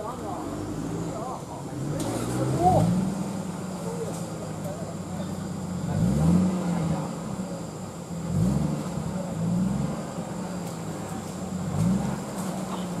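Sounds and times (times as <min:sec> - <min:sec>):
off-road vehicle engine revving: 0:00.0 - 0:13.0.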